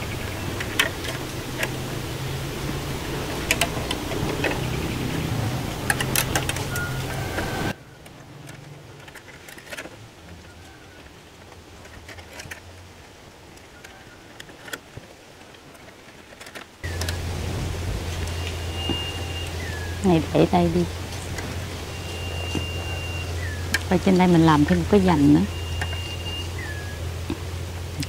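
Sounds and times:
steady low hum: 0:00.0 - 0:07.8, 0:16.8 - 0:28.0
small clicks and knocks: 0:03.4 - 0:04.7, 0:08.0 - 0:10.4, 0:11.0 - 0:12.7, 0:13.6 - 0:17.2.

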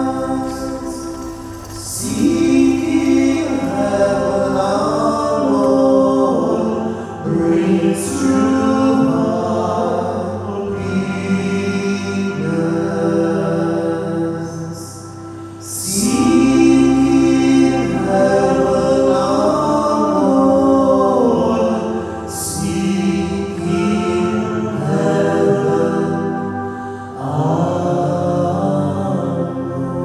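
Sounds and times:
slow sung hymn: 0:00.0 - 0:30.0
sustained instrumental accompaniment: 0:00.0 - 0:30.0.

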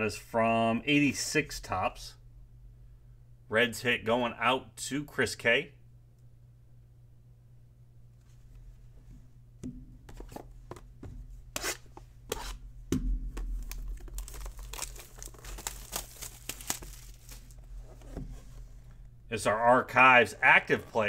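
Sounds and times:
plastic wrapper crinkling: 0:13.4 - 0:17.8.

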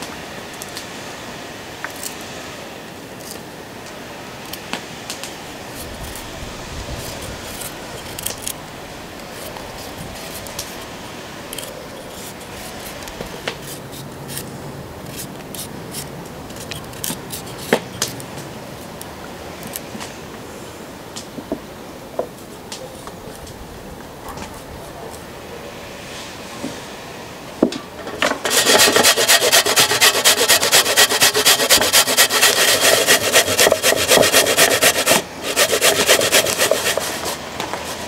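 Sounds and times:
knife scraping carrot skin: 0:05.7 - 0:06.3, 0:07.0 - 0:08.6, 0:09.2 - 0:10.9, 0:11.5 - 0:18.2, 0:28.4 - 0:38.0.

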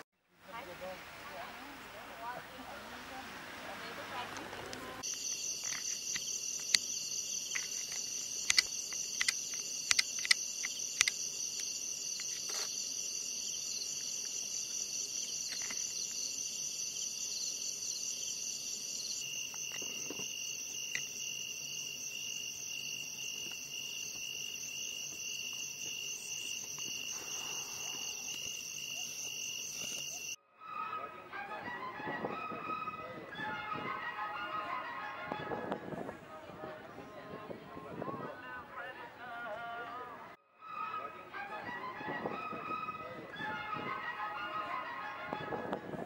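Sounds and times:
crickets and insects trilling: 0:05.0 - 0:30.4
sharp clicks: 0:07.5 - 0:12.7.

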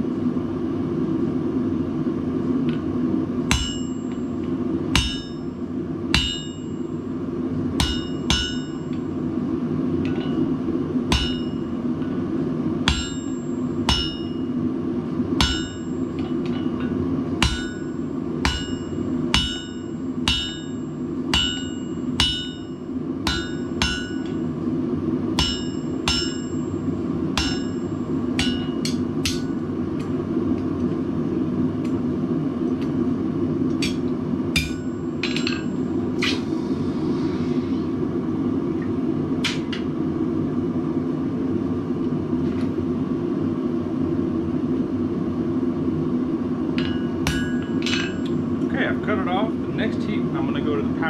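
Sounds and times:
hammer ringing on anvil: 0:03.5 - 0:04.3, 0:05.0 - 0:05.5, 0:06.1 - 0:06.9, 0:07.8 - 0:09.0, 0:11.1 - 0:11.7, 0:12.9 - 0:14.5, 0:15.4 - 0:24.5, 0:25.4 - 0:26.8, 0:27.4 - 0:29.6, 0:34.6 - 0:35.8, 0:46.8 - 0:48.3
forge drone: 0:35.7 - 0:39.3.

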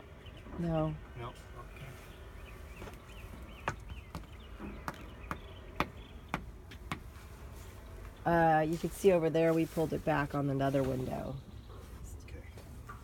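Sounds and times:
sharp taps: 0:03.6 - 0:07.1.

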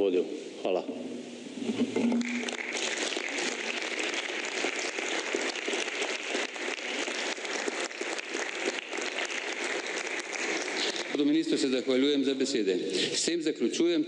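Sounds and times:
crowd applauding: 0:02.0 - 0:11.9.

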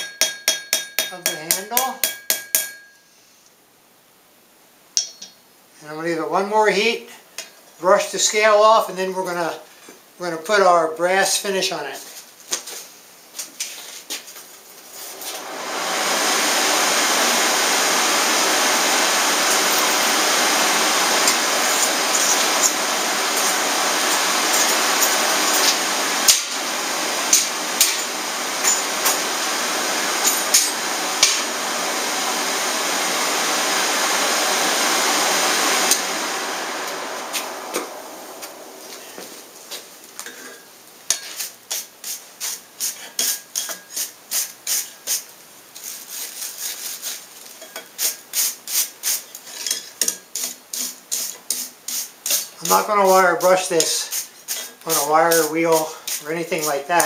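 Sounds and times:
forge air blower running: 0:15.0 - 0:40.6, 0:54.9 - 0:57.0
wire brush scraping steel: 0:38.8 - 0:57.0.

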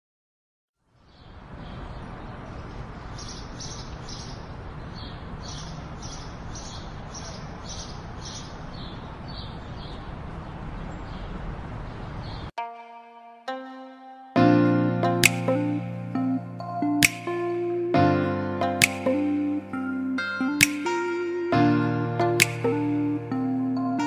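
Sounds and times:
birds chirping: 0:00.9 - 0:12.5.

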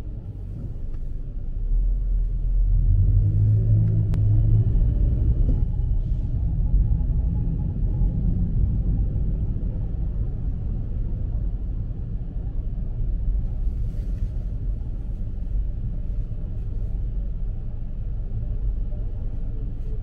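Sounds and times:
city street rumble: 0:00.0 - 0:20.0.

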